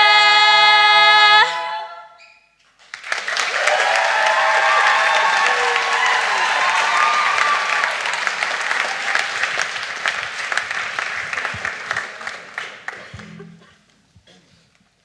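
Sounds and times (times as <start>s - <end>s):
audience applauding: 2.8s - 13.6s.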